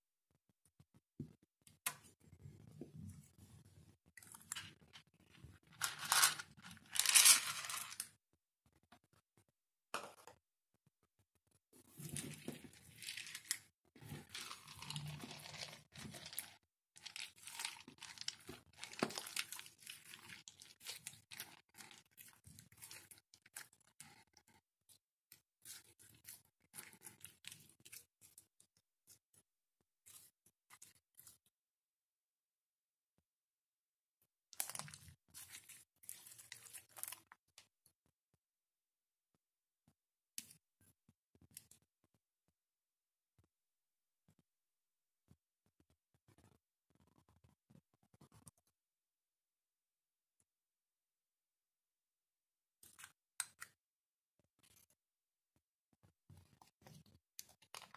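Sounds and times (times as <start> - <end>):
slime crackling and tearing: 12.9 - 23.2.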